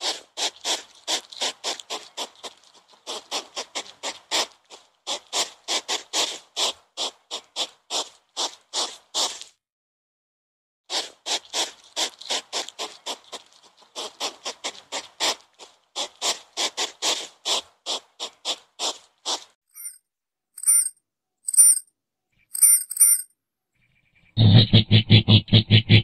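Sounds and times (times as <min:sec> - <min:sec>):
porcupine gnawing on bark: 0:00.0 - 0:09.6, 0:11.0 - 0:19.5.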